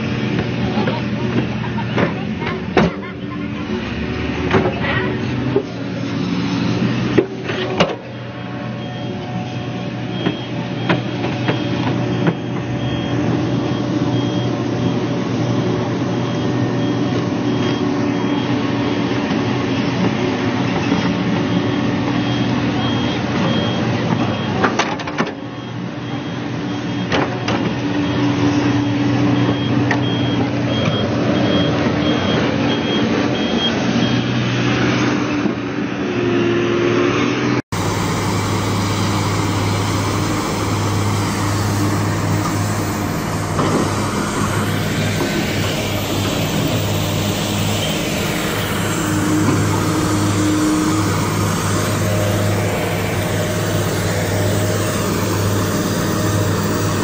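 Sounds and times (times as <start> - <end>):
excavator diesel engine: 0.0 - 57.0
heavy equipment engine: 0.0 - 57.0
travel alarm beeping: 8.2 - 19.3, 21.0 - 24.8, 25.4 - 34.4, 38.2 - 57.0
tracks clanking: 37.7 - 57.0.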